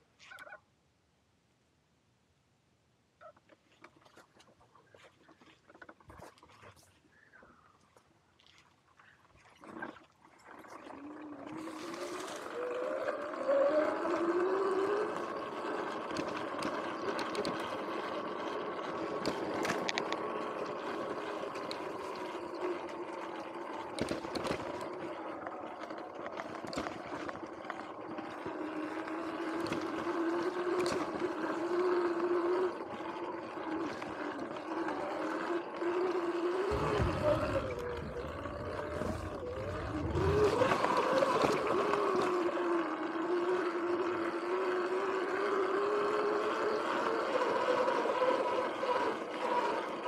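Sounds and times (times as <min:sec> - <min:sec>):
electric motor whining: 0:11.2 - 0:50.0
tyres rumbling on wooden bridge: 0:36.4 - 0:42.5
tyre and wind noise: 0:36.7 - 0:42.4.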